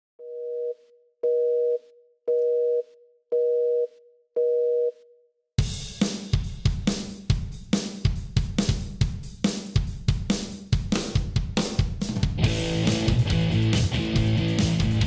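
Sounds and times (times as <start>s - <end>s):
telephone busy signal beeps: 0.2s - 5.0s
heavy metal band: 12.3s - 15.0s.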